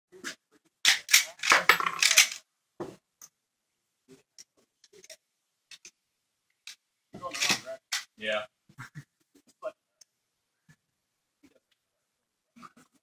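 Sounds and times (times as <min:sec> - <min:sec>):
clattering knocks and clinks: 0:01.4 - 0:02.4.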